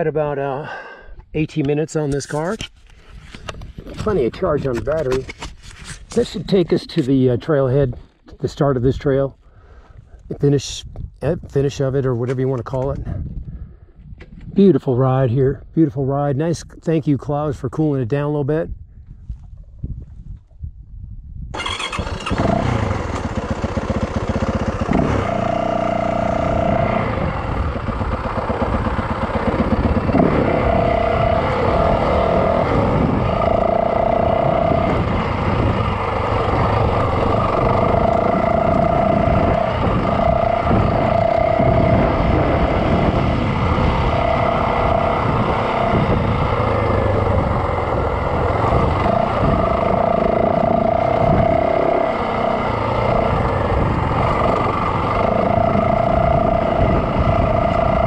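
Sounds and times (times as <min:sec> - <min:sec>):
dirt bike engine running: 0:21.6 - 0:58.0.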